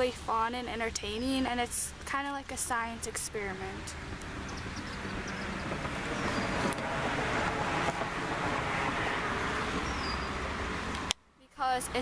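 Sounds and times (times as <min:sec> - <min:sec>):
passing vehicles hiss: 0:03.9 - 0:11.2.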